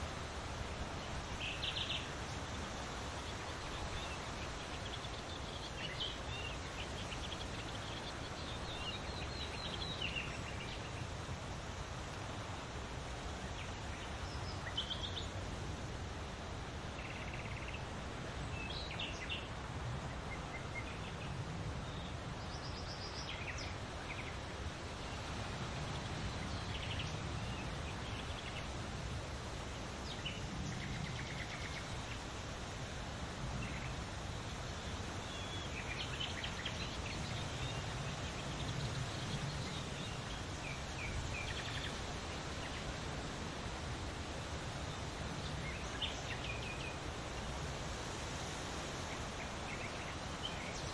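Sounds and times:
low wind rumble: 0.0s - 50.9s
wind rustling through leaves: 0.0s - 50.9s
small birds chirping and trilling: 0.9s - 15.5s, 16.8s - 50.9s.

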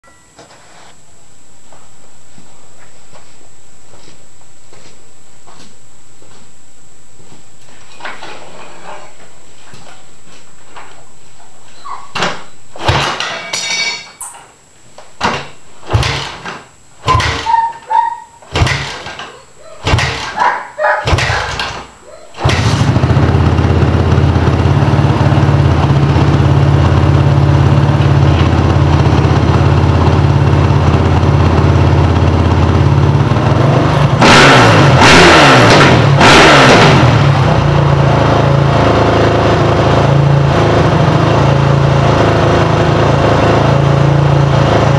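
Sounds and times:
motorcycle kick-start kicks: 15.2s - 17.8s, 18.5s - 20.4s, 21.0s - 27.3s
motorcycle engine idling and revving: 19.9s - 20.4s, 21.0s - 21.8s, 22.4s - 44.9s.

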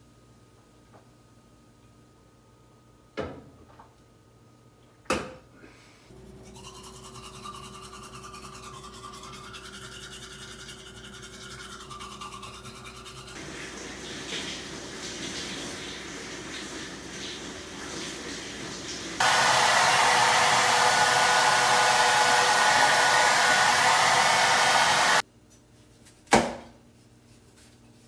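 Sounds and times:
toothbrush scrubbing teeth: 6.3s - 13.6s
running shower hiss: 13.4s - 25.2s.

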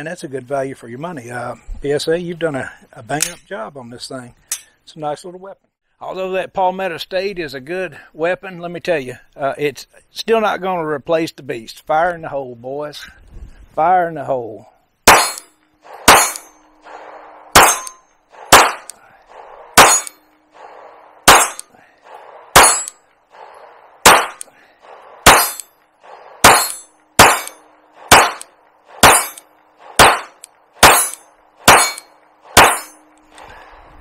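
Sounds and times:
pistol shots with echo: 15.0s - 33.1s.

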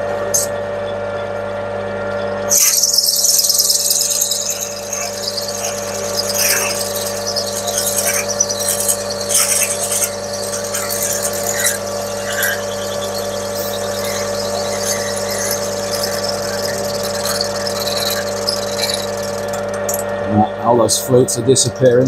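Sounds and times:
drill cutting metal: 2.5s - 20.0s
lathe motor hum: 2.5s - 20.0s.

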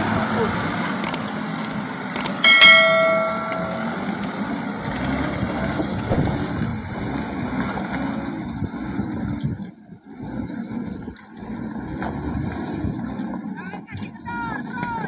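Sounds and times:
truck engine rumble: 0.0s - 14.7s
loud metallic clang: 2.3s - 4.2s.

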